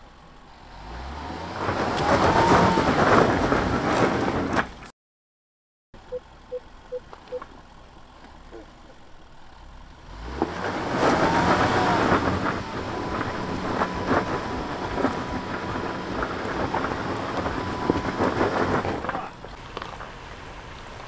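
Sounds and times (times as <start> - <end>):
low engine rumble: 0.0 - 4.9, 6.0 - 21.0
tyres crunching on gravel: 6.7 - 21.0.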